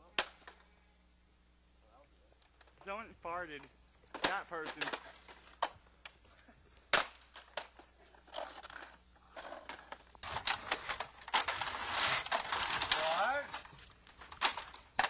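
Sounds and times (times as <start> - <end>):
crunching and crackling grit: 4.2 - 15.0
vacuum cleaner scraping on concrete: 11.4 - 12.8.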